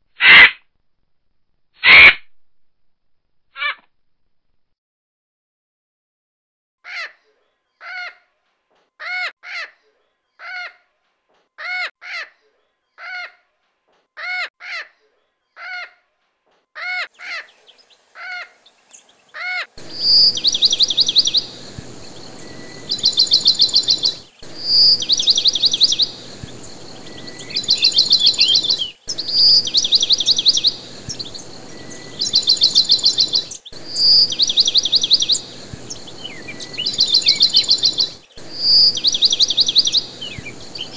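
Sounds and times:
short bird calls: 0:16.8 - 0:40.9
bird song with trill: 0:17.1 - 0:40.9
steady hiss: 0:17.2 - 0:40.9.

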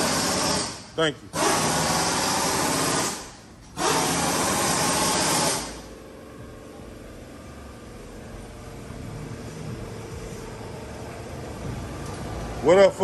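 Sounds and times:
impact wrench rattling: 0:00.0 - 0:05.8
steady shop background: 0:00.0 - 0:13.0.

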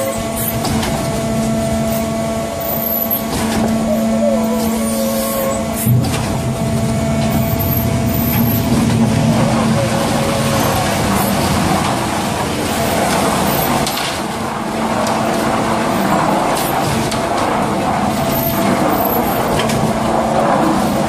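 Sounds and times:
concrete pump running: 0:00.0 - 0:21.0
wet concrete discharging: 0:05.4 - 0:21.0.

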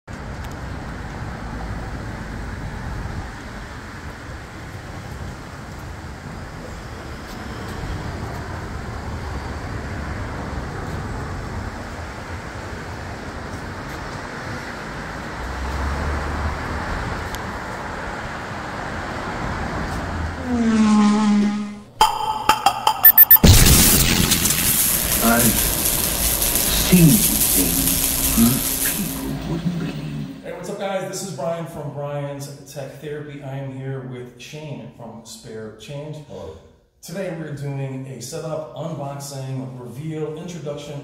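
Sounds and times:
passing cars: 0:00.1 - 0:21.8
loud falling tone: 0:20.4 - 0:30.5.

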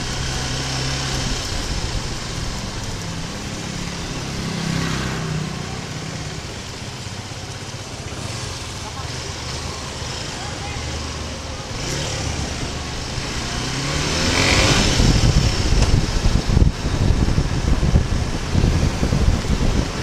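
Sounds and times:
wind noise on microphone: 0:00.0 - 0:04.7, 0:11.7 - 0:20.0
motorcycle engine revving: 0:00.0 - 0:20.0.

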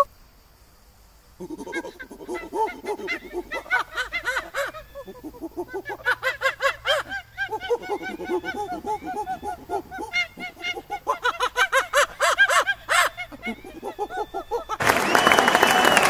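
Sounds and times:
eagle-owl chattering: 0:01.4 - 0:14.8.

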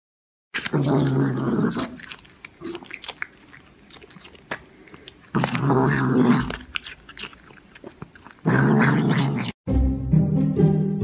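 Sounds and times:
cat crunching vegetable: 0:00.5 - 0:09.6
cat growling: 0:05.3 - 0:09.6.

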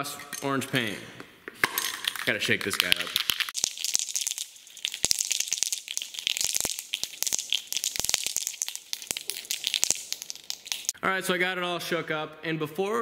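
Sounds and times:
spray paint can rattling: 0:01.8 - 0:11.0.

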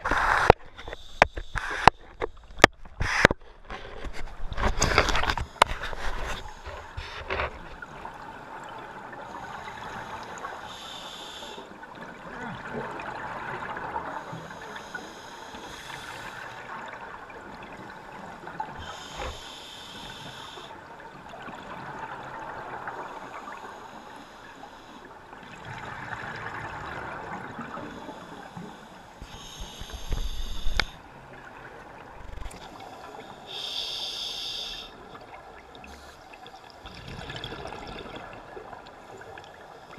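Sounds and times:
regulator hiss and gurgle: 0:04.6 - 0:39.9
exhaled air bubbling: 0:32.0 - 0:32.9, 0:35.0 - 0:39.0.

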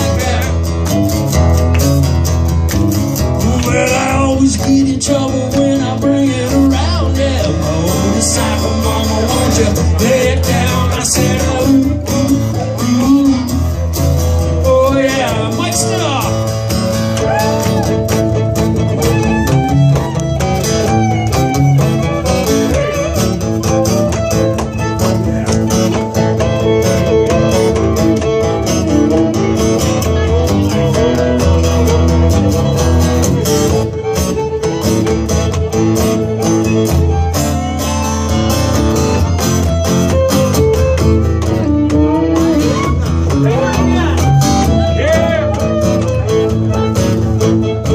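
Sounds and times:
strummed acoustic guitars: 0:00.0 - 0:47.9.

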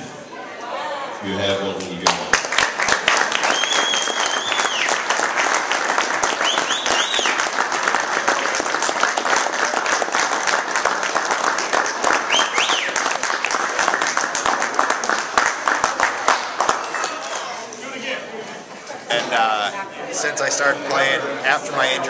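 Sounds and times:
crowd applauding: 0:01.8 - 0:17.9
sharp whistles: 0:03.5 - 0:04.9, 0:06.4 - 0:07.4, 0:12.3 - 0:13.0.

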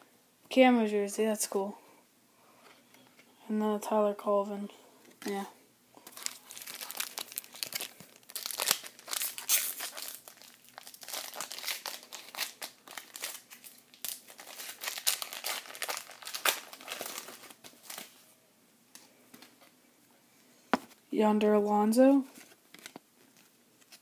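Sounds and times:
wrapper crinkling: 0:06.0 - 0:18.2.

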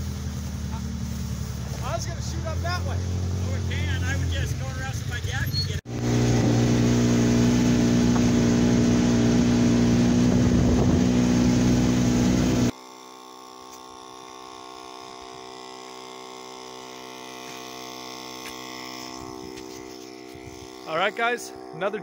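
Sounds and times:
vehicle engine idling: 0:00.0 - 0:12.7
loud engine drone: 0:00.0 - 0:12.8, 0:13.4 - 0:22.0.

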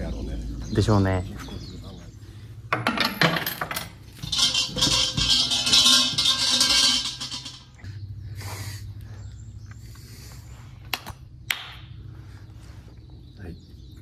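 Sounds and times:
hand claps: 0:10.9 - 0:11.9.

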